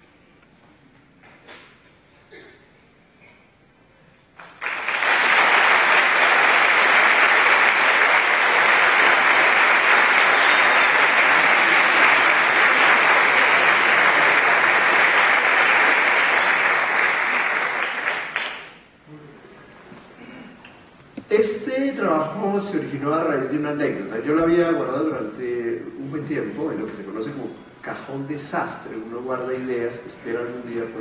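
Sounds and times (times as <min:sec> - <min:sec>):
audience applauding: 0:04.4 - 0:18.8.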